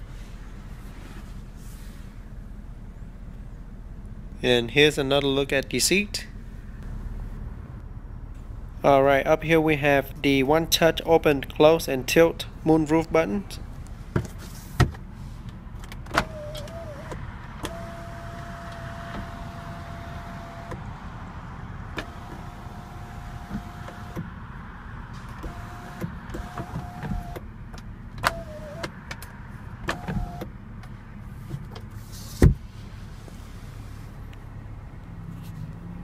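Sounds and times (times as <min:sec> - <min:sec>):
moonroof motor whining: 0:16.0 - 0:24.3, 0:25.3 - 0:27.4, 0:28.2 - 0:29.0.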